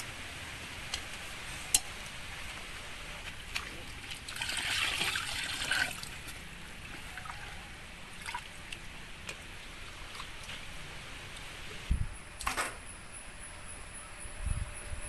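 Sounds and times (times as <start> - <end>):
water pouring into metal pot: 4.0 - 6.2.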